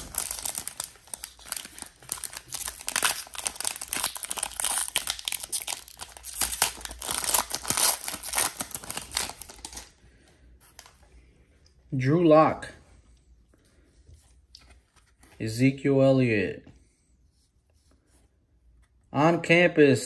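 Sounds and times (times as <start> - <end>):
foil wrapper crinkling: 0.0 - 9.9.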